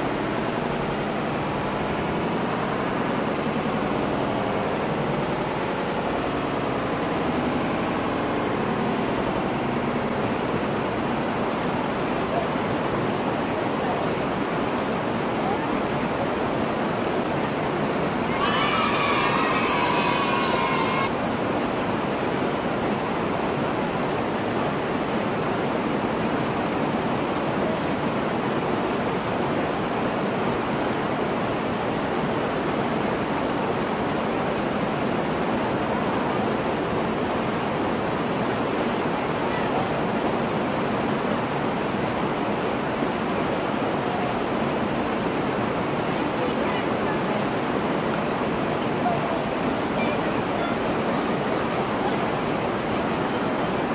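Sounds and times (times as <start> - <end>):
small waterfall rushing: 0.0 - 53.9
high-pitched voice-like sound: 18.3 - 21.1.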